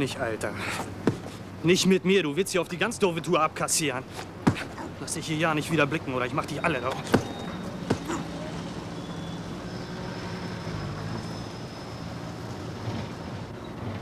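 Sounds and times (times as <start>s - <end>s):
vehicle engines droning: 0.0s - 14.0s
kick thud: 1.0s - 1.3s, 4.4s - 4.8s, 7.1s - 8.2s.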